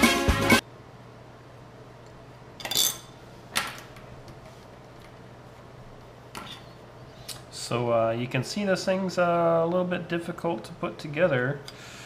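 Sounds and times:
low steady hum: 0.6 - 12.0.

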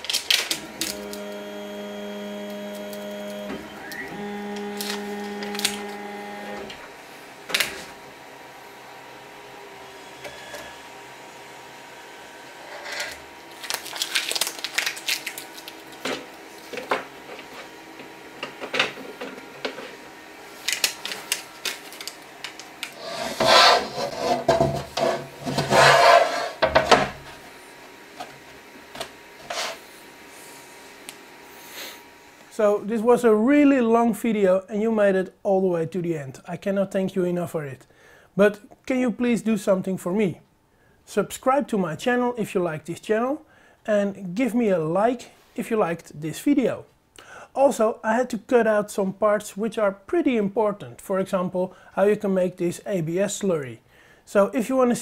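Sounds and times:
adhesive tape peeling and tearing: 0.0 - 1.4, 4.4 - 6.0, 13.5 - 16.7
steady multi-pitched hum: 0.0 - 33.8.

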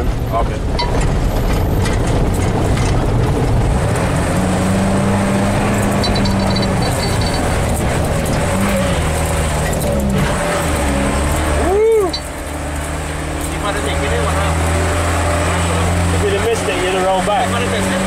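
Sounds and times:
tyres rumbling on concrete: 0.0 - 18.0
vehicle engine hum: 0.0 - 18.0.

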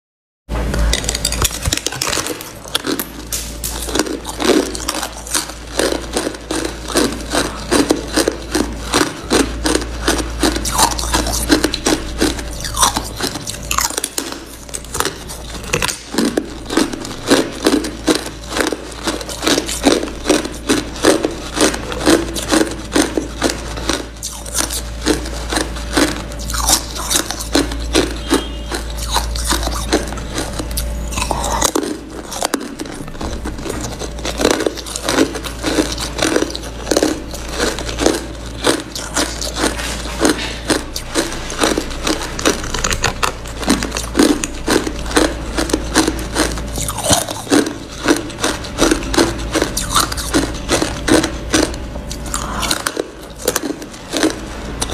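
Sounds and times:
steady low hum: 0.5 - 54.9
ice crunching while chewing: 0.8 - 54.9.

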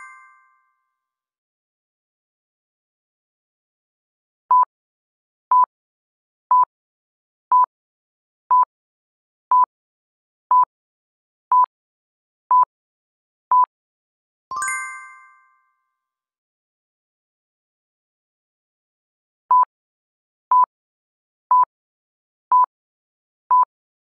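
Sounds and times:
bright multi-tone chime: 0.0 - 0.7, 14.5 - 15.8.

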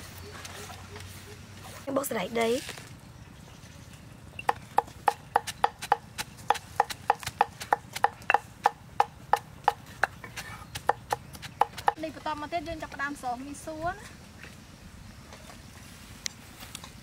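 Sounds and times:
pestle pounding in stone mortar: 4.5 - 12.0.

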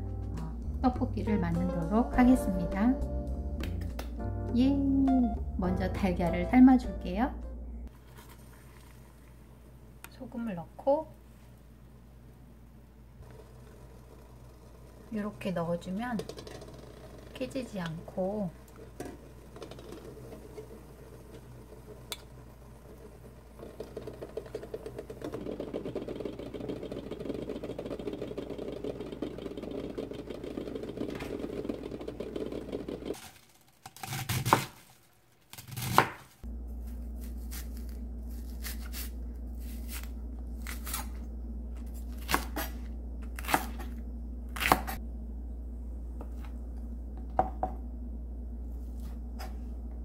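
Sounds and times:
steady low hum: 0.0 - 33.2, 36.4 - 50.0
water boiling in a pot: 13.2 - 33.7
knife slicing: 35.5 - 41.2, 41.8 - 45.0.

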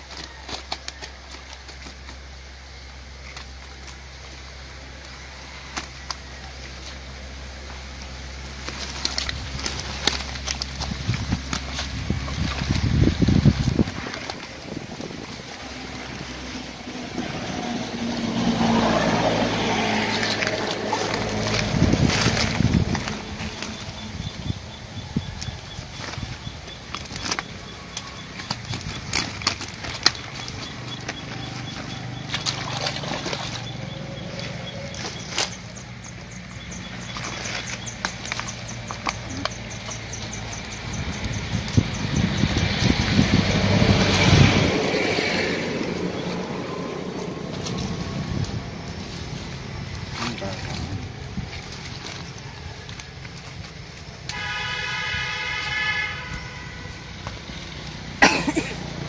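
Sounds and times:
fish flapping and splashing: 0.0 - 59.0
wet leaves and net rustling: 0.0 - 59.0
low motor hum: 2.3 - 54.1
boat engine running: 7.4 - 52.4.

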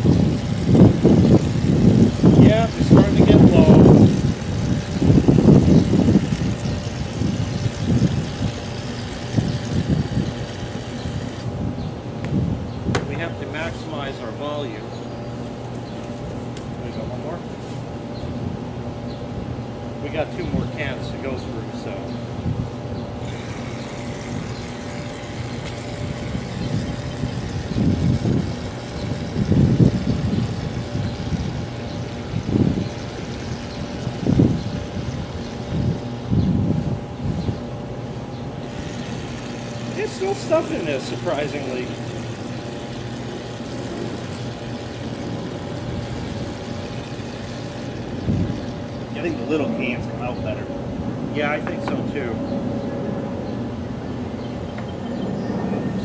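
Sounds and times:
shaving cream can sputtering: 0.0 - 11.5, 23.3 - 36.0, 38.6 - 49.4
low hum: 21.4 - 56.0.

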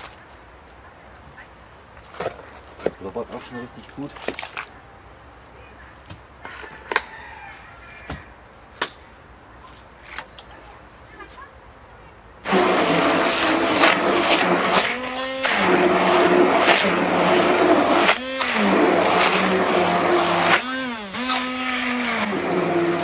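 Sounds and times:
stick blender motor whine: 12.4 - 23.0.

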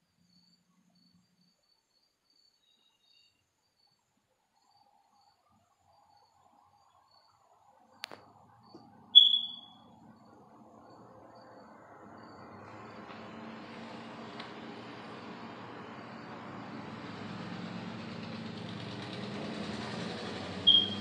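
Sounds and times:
faint high chirping: 0.3 - 7.6, 8.5 - 12.6, 20.6 - 21.0
loud high-pitched chirp: 9.1 - 9.9, 20.6 - 21.0.

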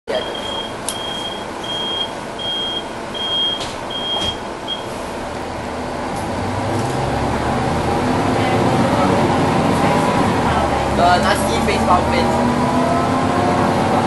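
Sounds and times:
bus door warning beeps: 0.1 - 5.0
diesel bus engine idling: 0.1 - 12.6.

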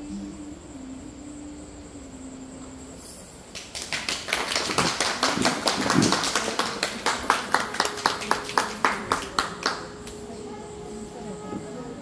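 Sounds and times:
hands clapping: 3.5 - 10.3.

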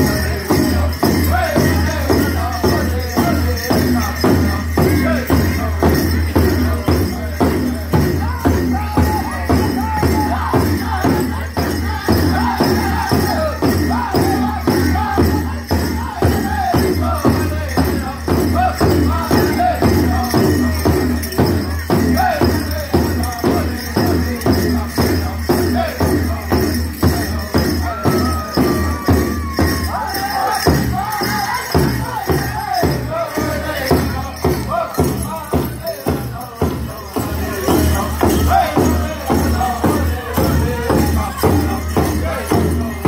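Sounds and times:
big drum steady beat: 0.0 - 43.0
men singing high-pitched vocables: 0.0 - 43.0.

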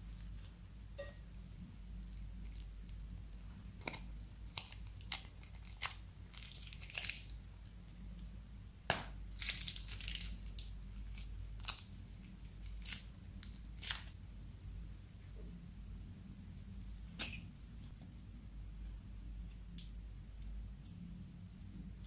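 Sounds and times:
plastic bag crinkling: 3.8 - 7.5, 9.3 - 14.2.

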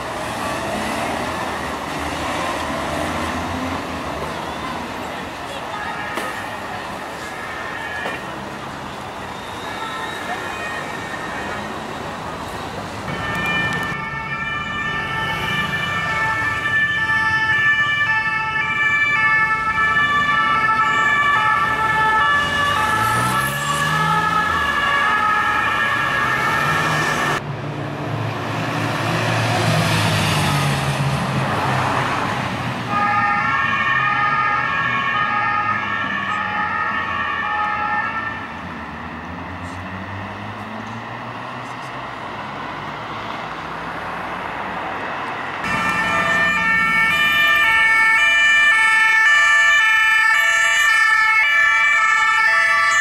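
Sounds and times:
loud traffic noise: 0.0 - 53.0
two-tone emergency siren: 5.8 - 11.9, 13.1 - 27.4, 32.9 - 40.1, 45.6 - 53.0
engine revving: 22.0 - 32.8.

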